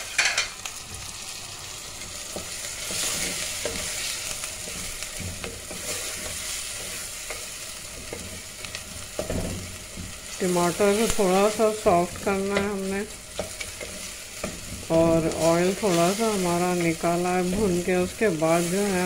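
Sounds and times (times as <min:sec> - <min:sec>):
tomatoes sizzling in hot oil: 0:00.0 - 0:19.0
wooden spoon knocking and scraping pot: 0:02.3 - 0:10.4, 0:11.0 - 0:16.1.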